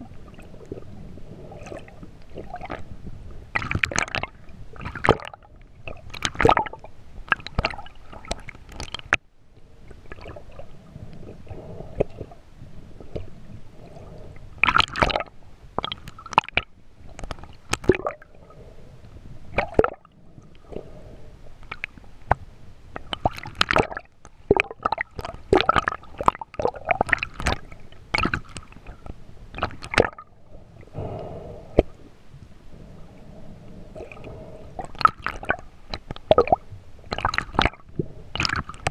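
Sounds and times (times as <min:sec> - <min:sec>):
water sloshing and gurgling: 0:00.0 - 0:38.9
sharp crackles and knocks: 0:34.8 - 0:38.9.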